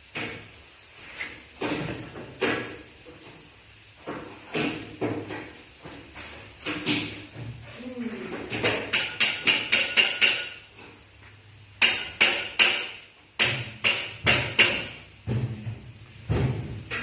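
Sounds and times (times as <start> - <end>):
hammer striking aluminium: 8.6 - 10.7, 11.8 - 15.1.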